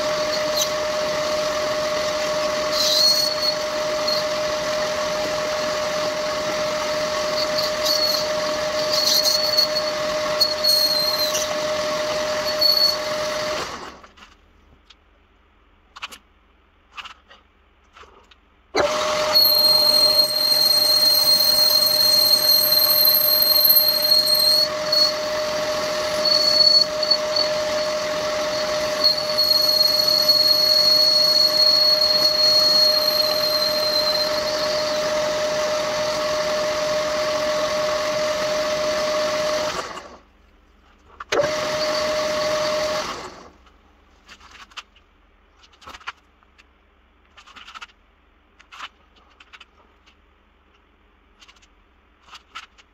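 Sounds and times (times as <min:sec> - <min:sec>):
thin high ring of cutting tool: 0:00.0 - 0:13.6, 0:18.8 - 0:38.4
metal lathe whining: 0:00.0 - 0:14.0, 0:18.8 - 0:40.2, 0:41.4 - 0:43.5.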